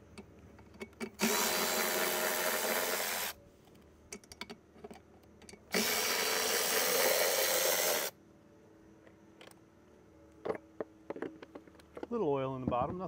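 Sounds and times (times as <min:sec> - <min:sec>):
cordless power ratchet running: 0:01.2 - 0:03.3, 0:05.7 - 0:08.1.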